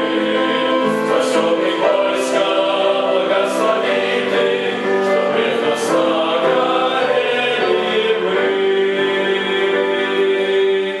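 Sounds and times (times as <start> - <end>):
male choir singing a hymn: 0.0 - 11.0.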